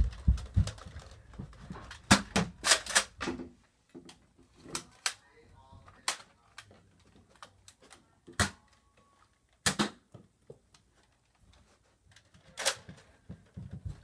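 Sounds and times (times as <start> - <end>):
toy blaster plastic clacks: 12.6 - 12.9.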